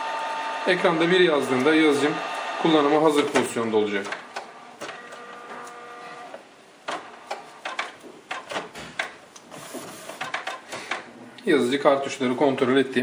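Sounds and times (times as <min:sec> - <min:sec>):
printer motor whine: 0:00.0 - 0:06.4
printer mechanism clicks and clacks: 0:03.2 - 0:05.8, 0:06.9 - 0:11.1.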